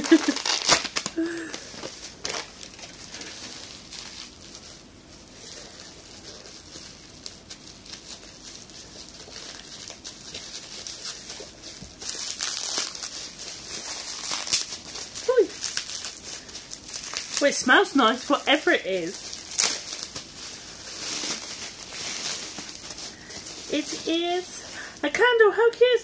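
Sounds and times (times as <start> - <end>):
paper wrapping rustling: 0.0 - 26.0
small crackles: 0.0 - 26.0.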